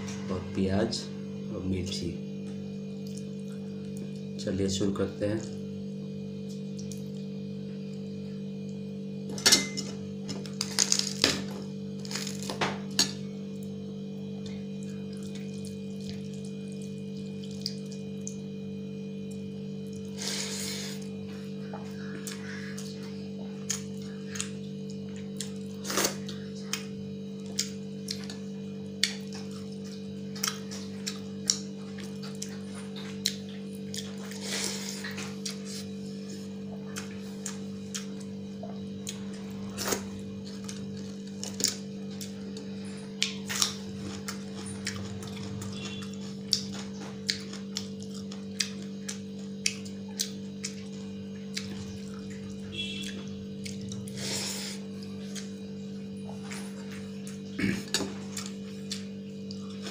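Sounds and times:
steady electrical hum: 0.0 - 59.9
chewing: 14.4 - 18.4, 19.3 - 55.6, 56.2 - 59.9.

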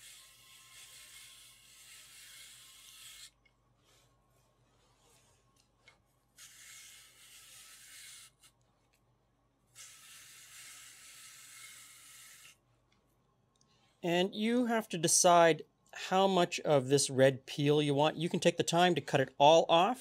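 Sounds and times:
blade shaving apple hiss: 0.0 - 3.4, 6.4 - 8.5, 9.7 - 12.6.

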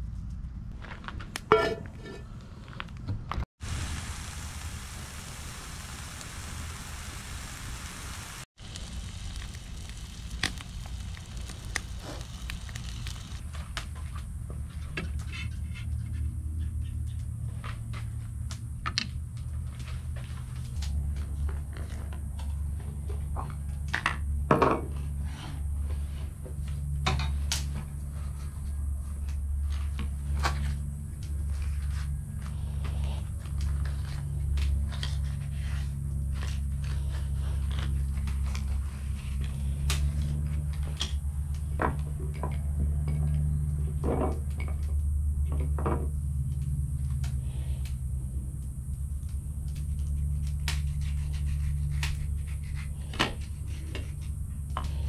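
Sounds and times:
metal utensils clinking on cookware: 1.5 - 2.2
steady low hum: 3.6 - 55.0.

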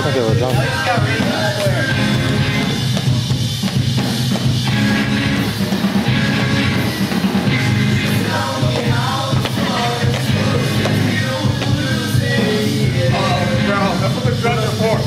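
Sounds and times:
rock music: 0.0 - 15.0
person singing: 8.0 - 15.0.

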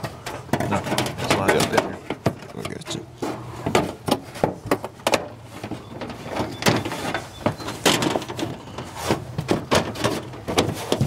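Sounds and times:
sheet metal knocking and scraping: 0.0 - 11.0.

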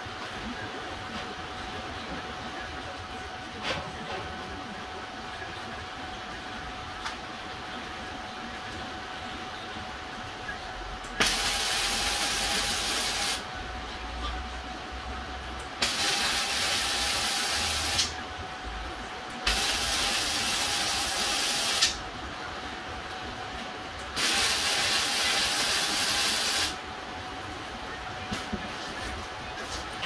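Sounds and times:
welding arc: 11.2 - 13.4, 15.8 - 18.1, 19.4 - 22.0, 24.1 - 26.8.

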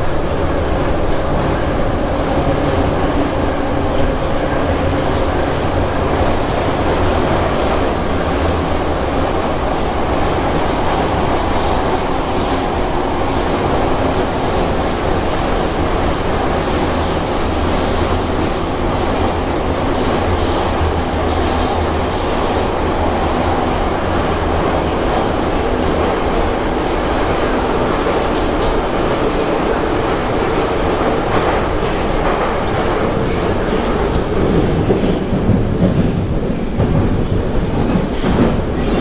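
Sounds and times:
train wheels rumbling on rails: 0.0 - 39.0.

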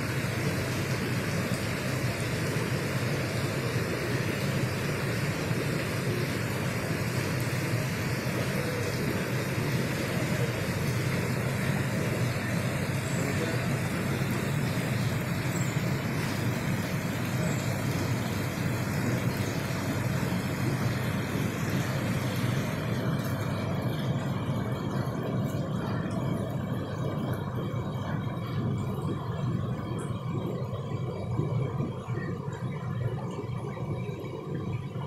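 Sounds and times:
fountain water splashing into pond: 0.0 - 35.0.

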